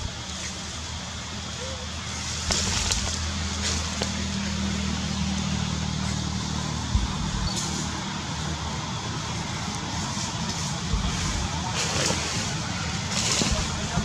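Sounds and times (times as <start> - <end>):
low engine hum: 0.0 - 14.0.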